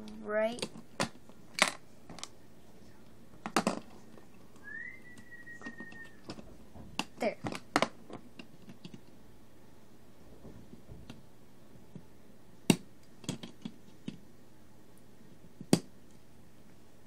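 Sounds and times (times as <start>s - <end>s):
plastic pieces clicking and knocking: 3.4s - 4.0s, 5.6s - 9.2s, 12.7s - 14.2s.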